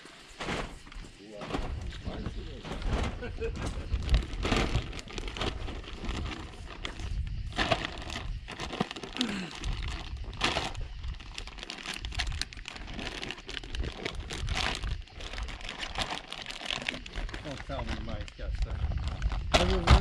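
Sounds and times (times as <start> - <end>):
plastic bag crinkling: 3.9 - 18.3.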